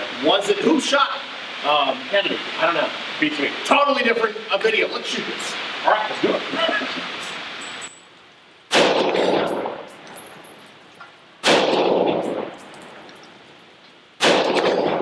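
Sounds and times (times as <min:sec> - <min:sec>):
rifle shots ringing out: 0:08.7 - 0:10.0, 0:11.4 - 0:13.1, 0:14.2 - 0:15.0.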